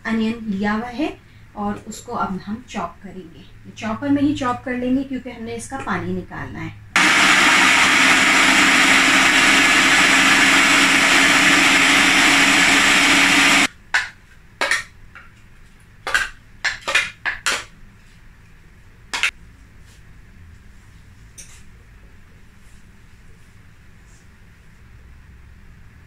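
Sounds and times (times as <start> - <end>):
food processor chopping: 7.0 - 13.7.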